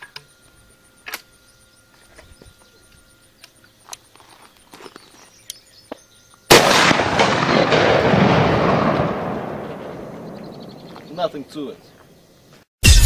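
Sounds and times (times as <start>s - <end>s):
rifle shot: 6.5s - 11.0s
rolling boom: 6.5s - 11.0s.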